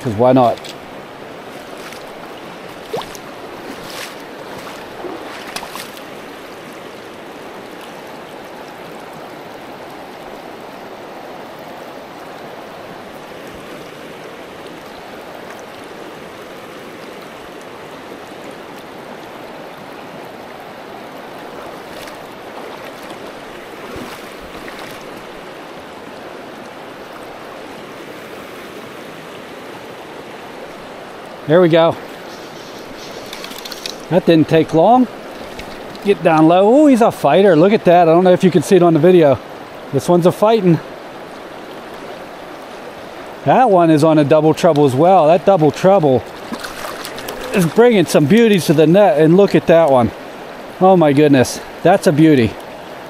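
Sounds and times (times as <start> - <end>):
stream water rushing: 0.0 - 53.0.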